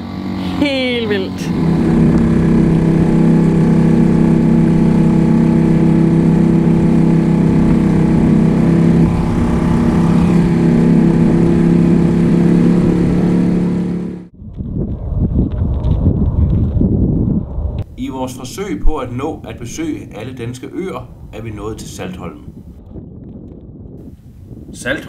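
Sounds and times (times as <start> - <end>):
outboard motor running: 0.0 - 14.3.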